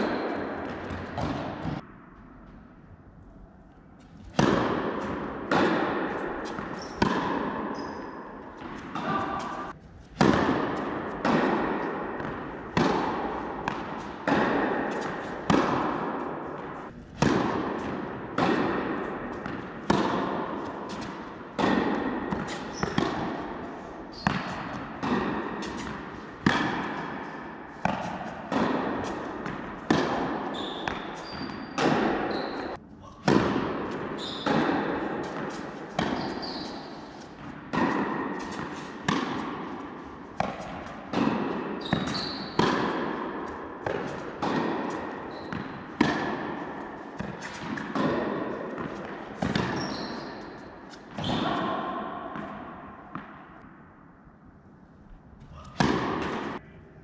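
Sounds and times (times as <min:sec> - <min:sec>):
tennis balls bouncing on court: 0:00.0 - 0:02.7, 0:04.0 - 0:53.8, 0:55.5 - 0:56.6
tennis balls struck by rackets: 0:00.0 - 0:02.7, 0:04.0 - 0:54.2, 0:55.5 - 0:56.6
short high squeaks: 0:36.2 - 0:36.9.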